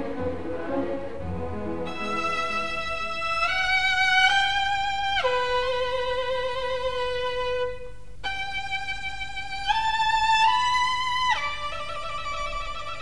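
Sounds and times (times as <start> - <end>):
solo violin long notes: 0.0 - 13.0.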